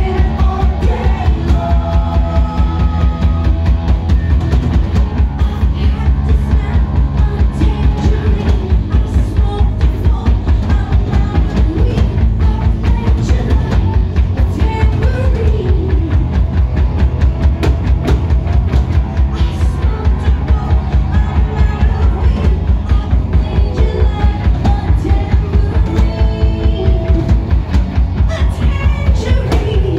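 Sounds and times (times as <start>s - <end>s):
person singing: 0.0s - 3.6s, 19.2s - 27.4s
bass guitar: 0.0s - 29.9s
drum kit fast beat: 0.0s - 29.9s
electric guitars: 0.0s - 29.9s.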